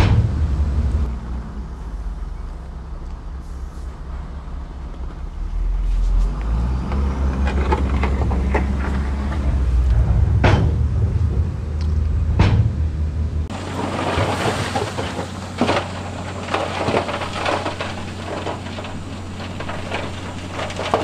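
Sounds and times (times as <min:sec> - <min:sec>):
knocks and clatter: 0:00.0 - 0:01.1, 0:06.2 - 0:21.0
sharp bang: 0:00.0 - 0:01.1, 0:09.7 - 0:13.3
heavy machinery diesel engine drone: 0:00.0 - 0:21.0.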